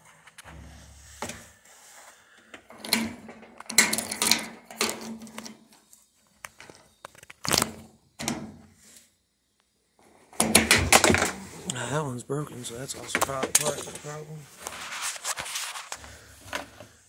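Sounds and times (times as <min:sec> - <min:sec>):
plastic parts clunking and knocking: 0:00.3 - 0:01.5, 0:02.4 - 0:08.7, 0:10.3 - 0:11.5, 0:13.0 - 0:14.1, 0:15.9 - 0:17.0
plastic parts scraping: 0:02.5 - 0:08.4, 0:13.0 - 0:16.9.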